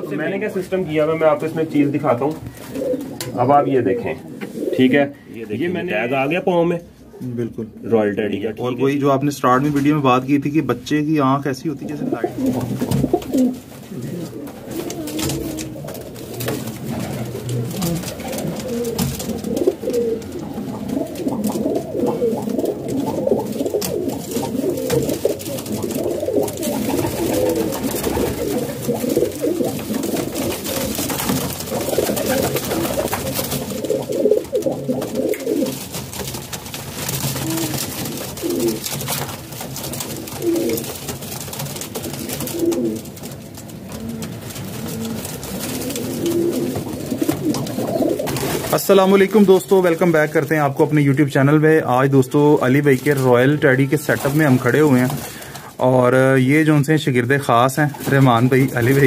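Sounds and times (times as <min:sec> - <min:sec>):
pigeons cooing: 0:00.0 - 0:06.4, 0:11.7 - 0:50.0.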